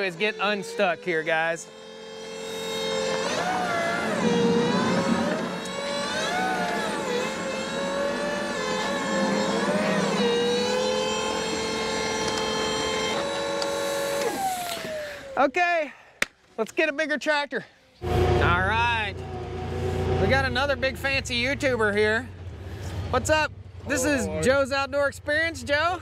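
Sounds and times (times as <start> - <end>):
electric tractor motor whining: 0.0 - 15.5.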